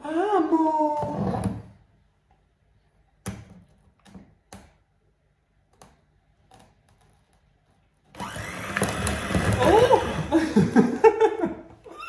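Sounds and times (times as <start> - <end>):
electric hand mixer running: 8.2 - 10.4.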